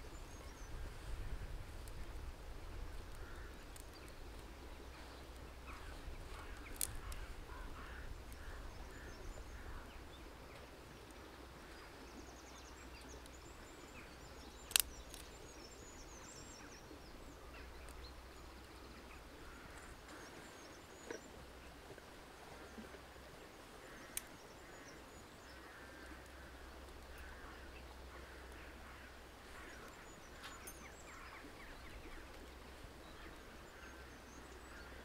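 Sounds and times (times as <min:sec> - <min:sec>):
birds calling: 0:02.8 - 0:21.8, 0:22.4 - 0:35.0
dry twigs snapping: 0:06.3 - 0:07.3, 0:14.6 - 0:15.4.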